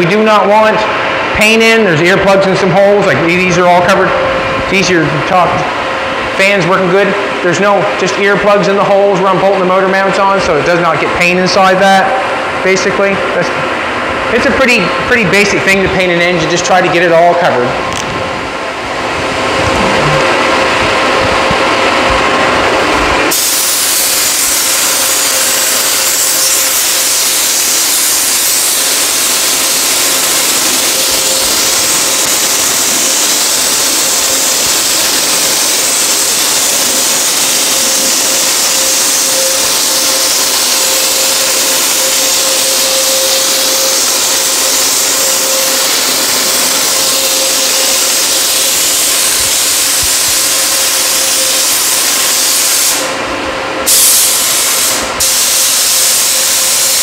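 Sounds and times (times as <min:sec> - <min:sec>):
paint spray gun hissing: 0:23.3 - 0:53.2, 0:53.9 - 0:57.0.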